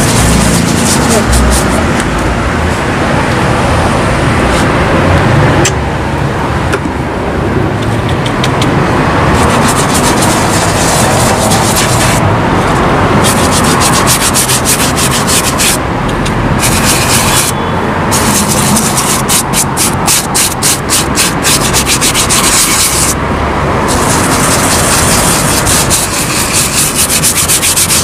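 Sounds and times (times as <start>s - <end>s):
brush scrubbing suede boot: 0.0s - 1.8s, 9.4s - 12.2s, 13.2s - 15.8s, 16.6s - 17.5s, 18.1s - 23.2s, 23.9s - 28.0s.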